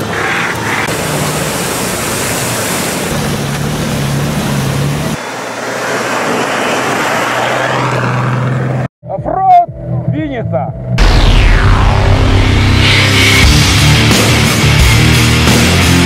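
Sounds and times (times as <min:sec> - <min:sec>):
vehicle engine running: 0:00.0 - 0:05.3
water spraying around vehicle: 0:00.0 - 0:08.0.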